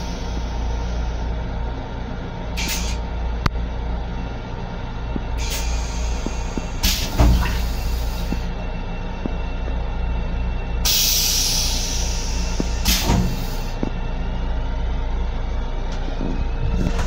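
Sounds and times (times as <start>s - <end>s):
train low rumble: 0.0s - 17.0s
air hissing: 2.6s - 3.0s, 5.2s - 8.5s, 10.8s - 13.9s.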